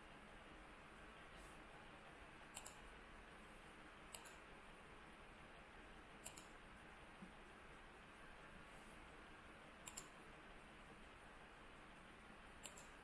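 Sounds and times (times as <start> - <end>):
computer mouse clicking: 2.5 - 2.9, 4.1 - 4.5, 6.2 - 6.6, 9.8 - 10.2, 12.6 - 13.0.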